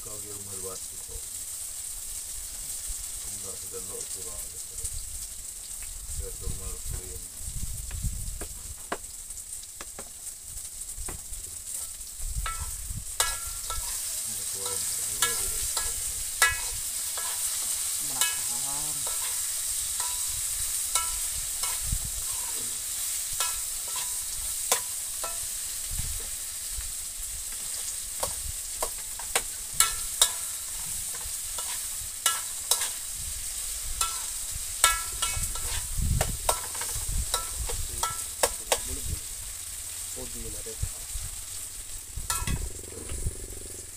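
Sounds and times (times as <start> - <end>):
food sizzling in oil: 0.0 - 43.9
metal spoon scraping and clinking pan: 11.7 - 25.8, 27.5 - 38.9, 42.3 - 42.7.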